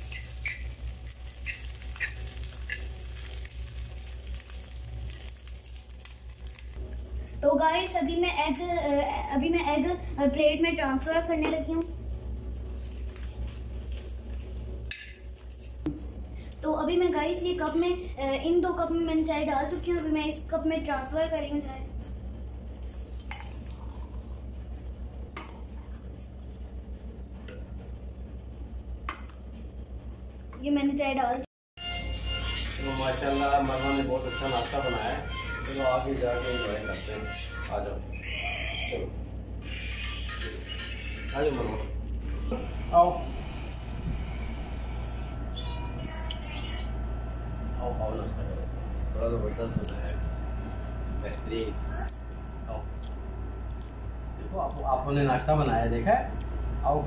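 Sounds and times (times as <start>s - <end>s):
egg sizzling in a frying pan: 0.0s - 8.3s, 11.8s - 15.9s
low hum: 0.0s - 31.4s, 37.4s - 57.0s.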